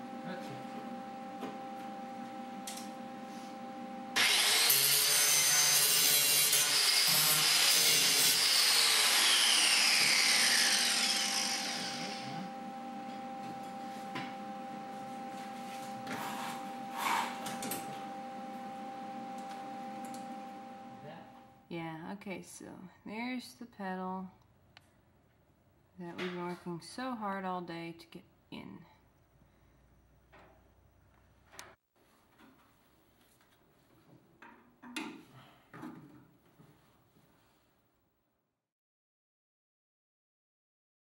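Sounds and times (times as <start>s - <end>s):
power tool whining on steel: 4.2s - 13.6s.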